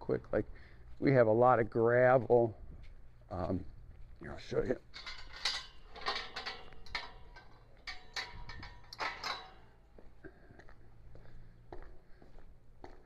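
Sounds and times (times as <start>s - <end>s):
footsteps on concrete: 0.1s - 4.9s, 9.1s - 13.0s.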